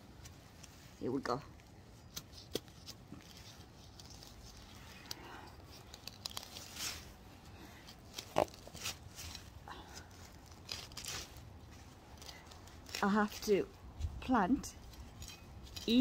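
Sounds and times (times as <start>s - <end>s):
trowel scraping soil: 14.8s - 16.0s.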